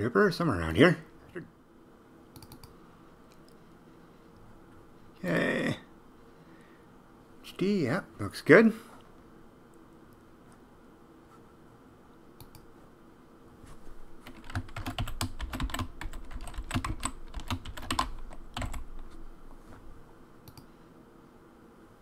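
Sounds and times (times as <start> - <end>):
computer keyboard typing: 2.4 - 2.8, 14.2 - 19.0.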